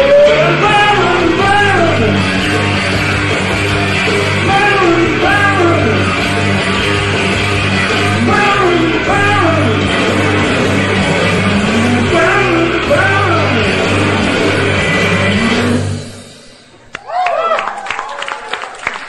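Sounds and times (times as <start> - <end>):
man singing: 0.0 - 2.6, 4.2 - 6.5, 7.9 - 16.0
electric guitar: 0.0 - 16.6.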